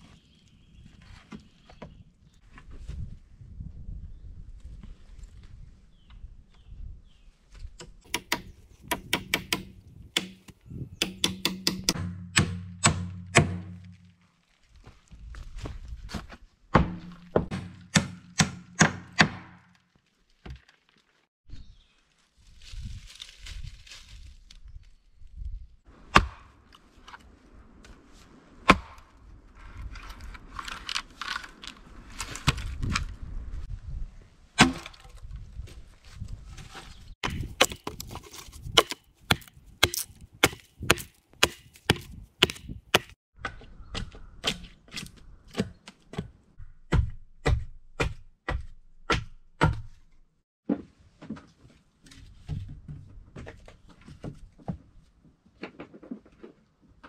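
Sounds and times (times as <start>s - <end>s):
hatchet chopping wood: 7.8s - 14.0s, 16.7s - 19.7s, 26.1s - 26.5s, 28.6s - 29.1s, 34.6s - 35.1s, 37.2s - 50.0s.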